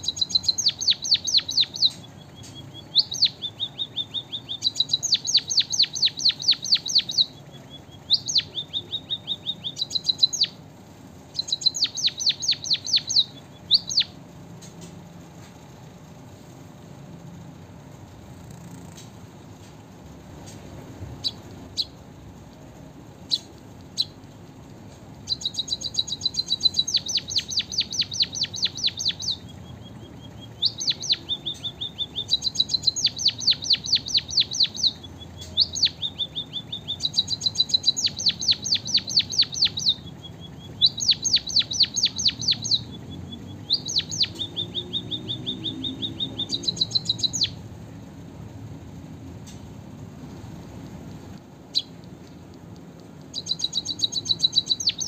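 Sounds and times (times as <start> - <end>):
bird held whistles: 0.0 - 7.3, 8.0 - 10.6, 11.4 - 14.2, 25.3 - 29.5, 30.3 - 43.0, 43.6 - 47.6, 53.3 - 55.0
bird high chips: 0.0 - 14.2, 24.9 - 47.6, 53.2 - 55.0
bird trilling song: 0.0 - 14.9, 20.4 - 22.0, 23.2 - 24.3, 24.9 - 47.6, 51.6 - 55.0.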